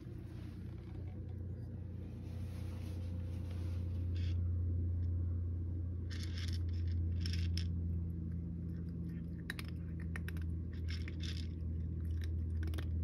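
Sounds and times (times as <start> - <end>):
cat crunching dry food: 0.0 - 2.0, 6.0 - 13.0
steady low hum: 0.0 - 13.0.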